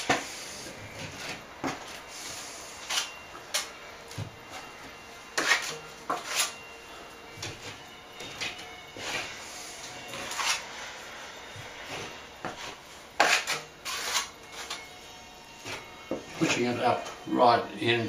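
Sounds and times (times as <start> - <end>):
plastering knife scraping plaster: 5.4 - 6.6, 10.1 - 10.6, 12.4 - 14.8.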